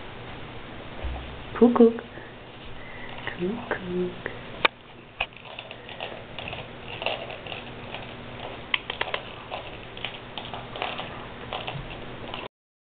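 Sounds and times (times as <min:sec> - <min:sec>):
puppy gnawing chew stick: 0:04.7 - 0:12.5.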